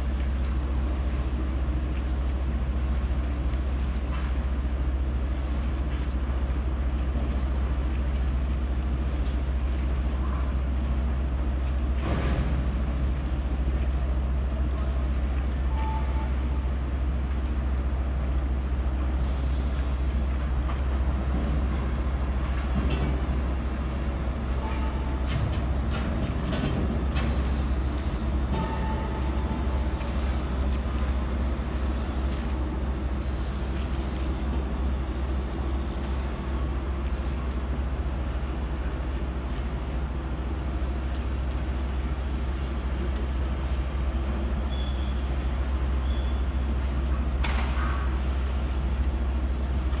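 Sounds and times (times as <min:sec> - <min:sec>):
low engine rumble: 0:00.0 - 0:50.0.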